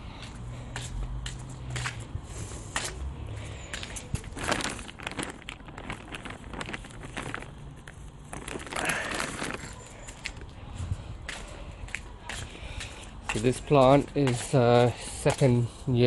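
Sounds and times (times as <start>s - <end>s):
plastic bag crinkling: 3.7s - 10.6s
crackles and clicks: 3.8s - 10.6s.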